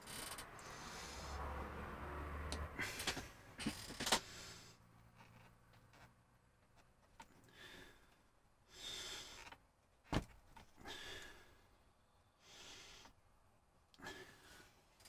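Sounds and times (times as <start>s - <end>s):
person breathing heavily through nose: 0.6s - 1.6s, 4.2s - 4.9s, 7.4s - 9.5s, 10.8s - 11.6s, 12.4s - 13.2s, 14.0s - 14.8s.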